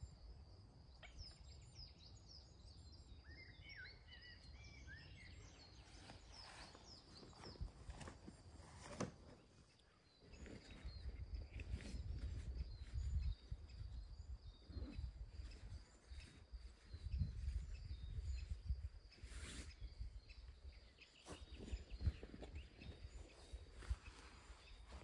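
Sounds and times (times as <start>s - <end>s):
faint bird chirps: 0.0s - 25.0s
rustle: 5.8s - 13.8s, 14.7s - 25.0s.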